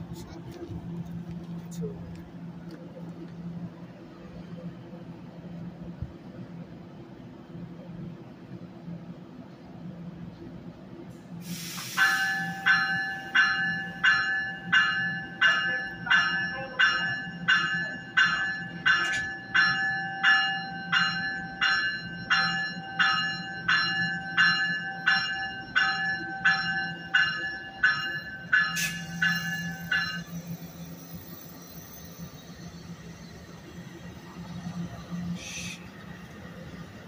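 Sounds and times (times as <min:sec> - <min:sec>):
short hiss: 0:11.4 - 0:12.4
train warning bell ringing: 0:11.9 - 0:37.0.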